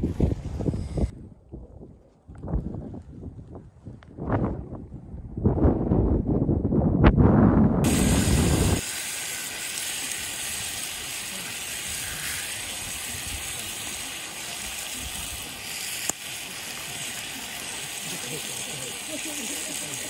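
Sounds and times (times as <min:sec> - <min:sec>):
wind buffeting microphone: 0:00.0 - 0:08.8
food frying with sizzling hiss: 0:07.8 - 0:20.0.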